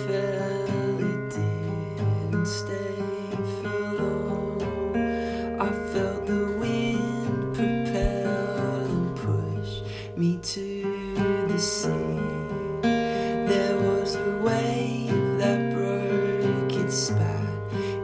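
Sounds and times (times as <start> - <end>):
acoustic guitar strummed chords: 0.0 - 18.0.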